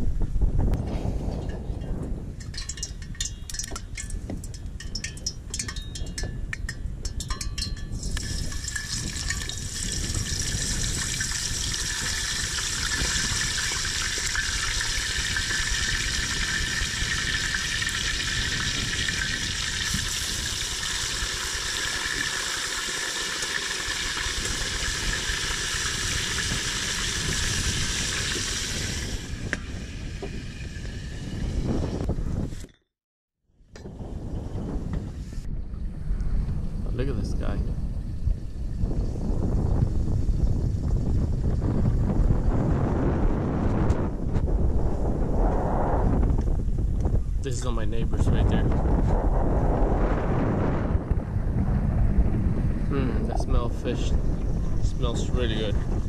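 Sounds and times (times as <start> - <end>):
wind on microphone: 0.0 - 32.7, 33.6 - 56.0
fish sizzling in hot oil: 8.0 - 31.3.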